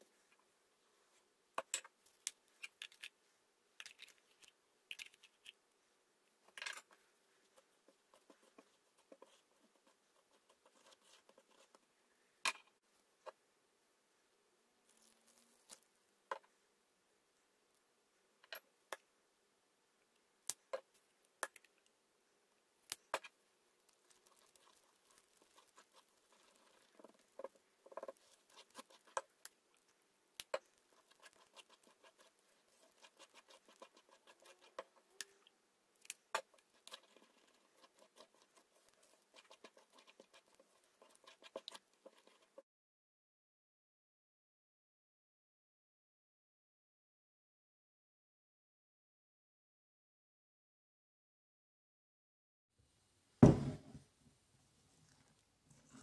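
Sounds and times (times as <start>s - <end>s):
spatula scraping a bowl: 30.5s - 35.2s, 36.3s - 42.6s.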